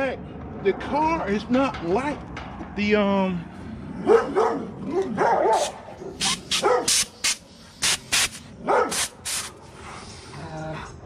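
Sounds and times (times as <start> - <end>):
dog barking and yipping: 4.0 - 7.2, 8.6 - 9.2
compressed air hissing: 6.2 - 9.6.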